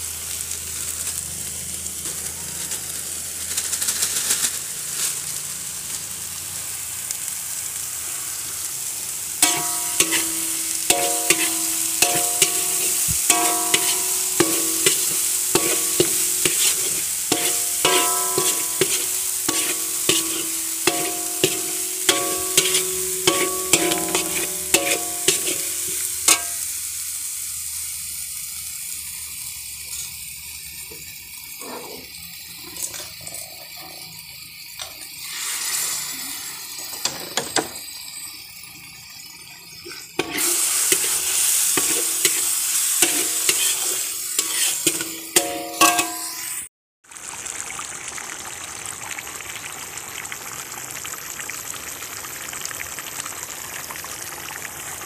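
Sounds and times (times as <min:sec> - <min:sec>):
paste sizzling in a wok: 0:00.0 - 0:55.0
wok ringing: 0:09.1 - 0:27.0, 0:39.7 - 0:46.7
metal spoon scraping wok: 0:09.4 - 0:26.6, 0:40.2 - 0:46.7.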